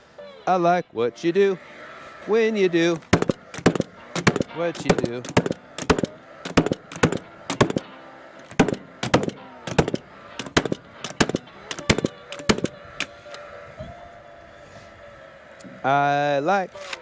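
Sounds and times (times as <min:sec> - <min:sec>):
nail gun firing: 0:03.0 - 0:13.2.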